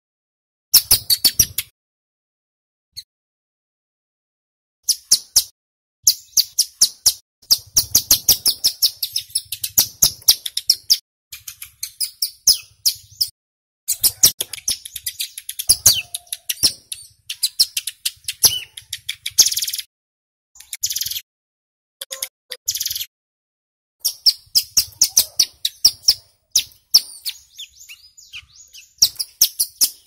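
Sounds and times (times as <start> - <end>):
bird song of high chips: 0.8 - 1.7, 4.8 - 5.5, 6.1 - 19.9, 20.6 - 21.2, 22.0 - 23.1, 24.0 - 30.0
buzzy bird trill: 6.1 - 13.3, 13.9 - 19.9, 22.0 - 23.1, 24.0 - 30.0.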